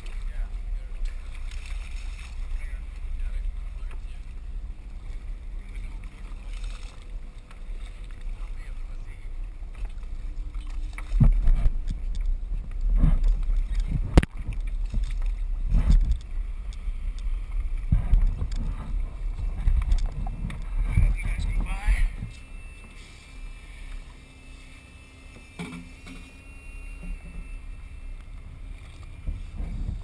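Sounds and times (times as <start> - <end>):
low rumble: 0.0 - 30.0
water slapping against boat hull: 5.0 - 22.4.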